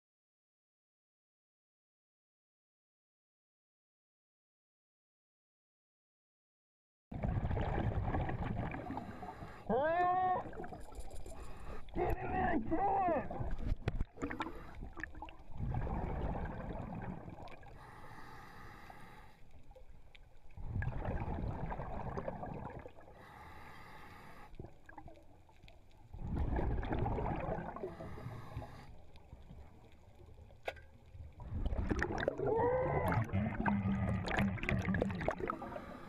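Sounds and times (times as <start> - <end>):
exhaled bubbles rumbling: 7.1 - 9.2, 12.1 - 17.8, 20.6 - 23.1, 26.0 - 28.7, 31.1 - 36.0.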